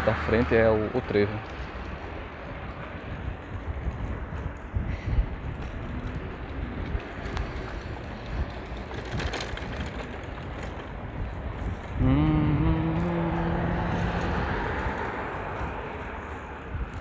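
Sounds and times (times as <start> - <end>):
wind and rolling noise: 0.0 - 17.0
steady low drone: 1.4 - 9.1, 11.8 - 17.0.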